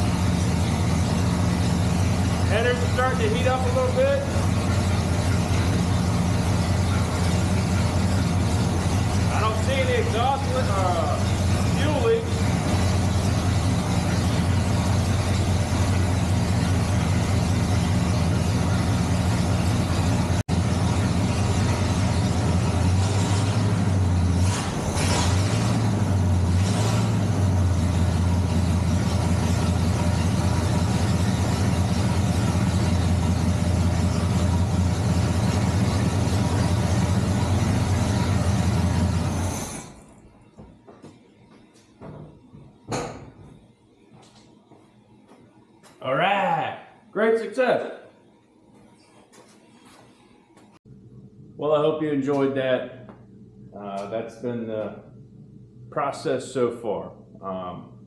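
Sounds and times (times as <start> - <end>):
car engine running: 0.0 - 41.0.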